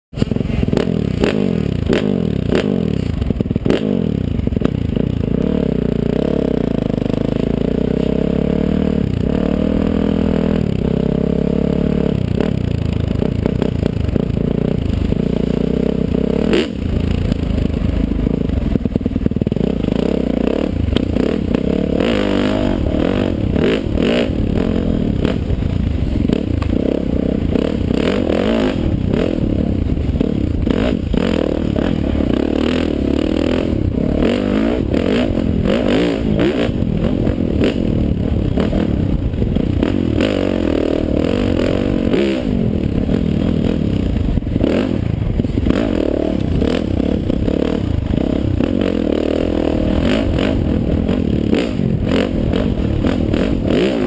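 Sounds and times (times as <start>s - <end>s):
dirt bike engine revving: 0.2s - 54.0s.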